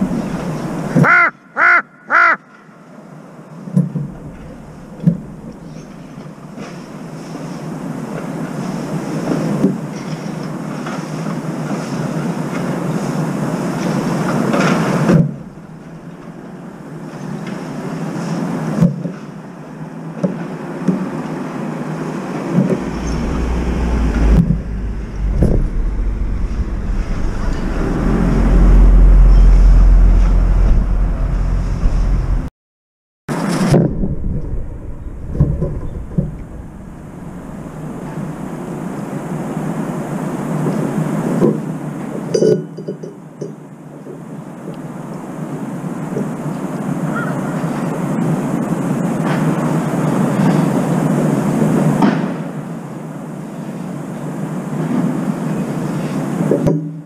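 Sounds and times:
street traffic: 21.9 - 32.5, 33.4 - 40.2
deep low noise: 22.2 - 32.5, 33.5 - 40.0.

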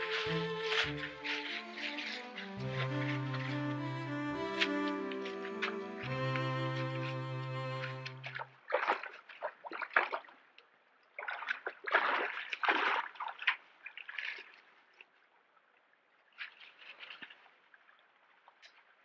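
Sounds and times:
stream trickling: 0.0 - 19.0
animal splashing in water: 11.2 - 14.6.

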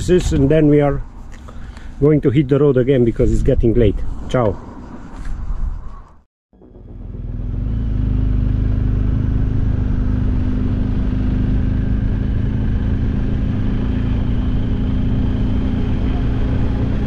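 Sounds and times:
road noise: 0.0 - 17.0
wind noise: 2.4 - 6.2
motorcycle engine cruising: 6.6 - 17.0.

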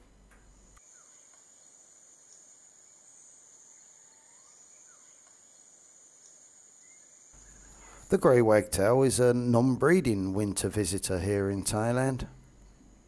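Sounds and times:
high-pitched insect drone: 0.8 - 8.1.

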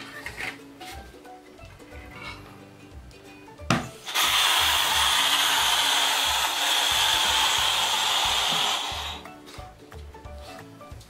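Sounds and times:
air hissing out of balloon: 4.0 - 9.2.

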